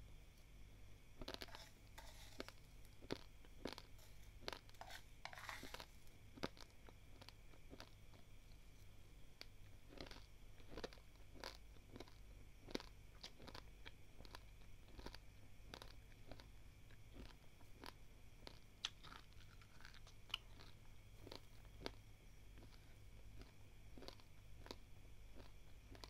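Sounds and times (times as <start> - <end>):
crunching dry rice grains: 1.2 - 8.4, 9.4 - 26.0.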